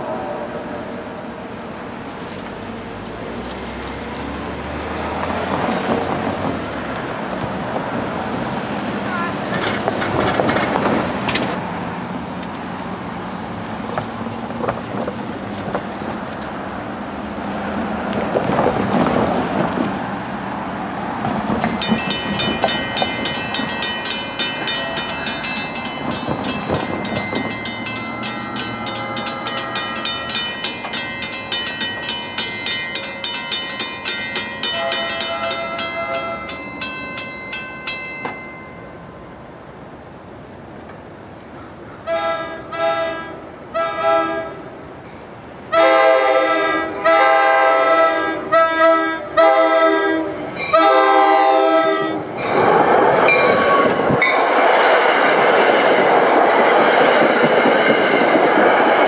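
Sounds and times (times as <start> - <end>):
road traffic passing: 0.0 - 59.0
crossing warning bells ringing: 21.5 - 39.6, 49.2 - 59.0.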